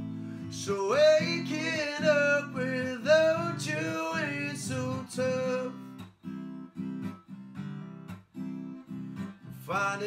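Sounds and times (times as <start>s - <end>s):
acoustic guitar strumming: 0.0s - 10.0s
man singing: 0.4s - 5.9s, 9.6s - 10.0s.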